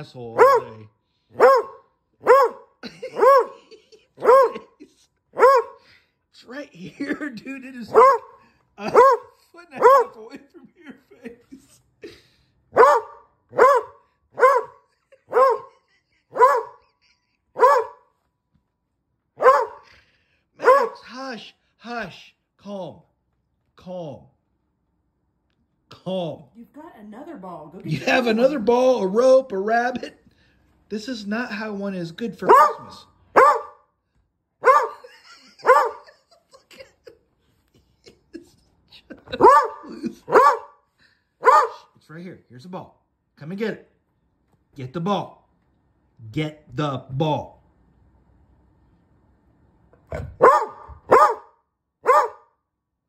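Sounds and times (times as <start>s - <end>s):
dog barking: 0.3s - 5.9s, 7.9s - 10.2s, 12.7s - 16.9s, 17.6s - 18.1s, 19.4s - 19.9s, 20.6s - 21.1s, 32.4s - 33.9s, 34.6s - 36.2s, 39.3s - 40.8s, 41.4s - 41.9s, 50.1s - 52.6s.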